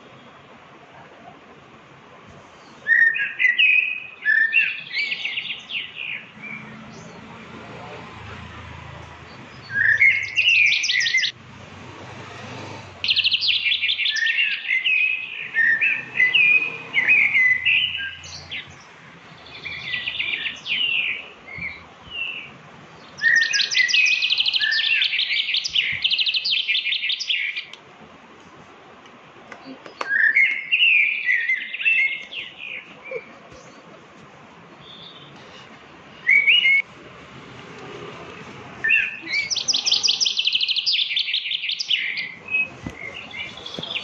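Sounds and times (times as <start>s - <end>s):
songbird trilling and chirping: 2.8s - 7.3s, 9.3s - 11.4s, 13.0s - 27.8s, 29.6s - 33.9s, 38.8s - 44.0s.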